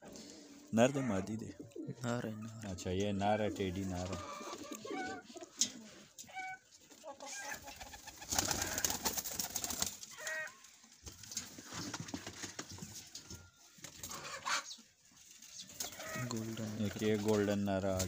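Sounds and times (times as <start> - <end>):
pigeons cooing: 0.0 - 6.6, 7.5 - 9.2.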